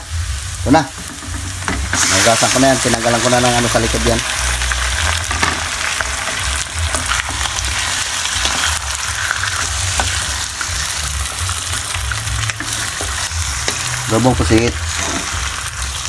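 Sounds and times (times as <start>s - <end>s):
squid sizzling in a wok: 0.0s - 16.0s
spatula scraping a pan: 12.2s - 16.0s.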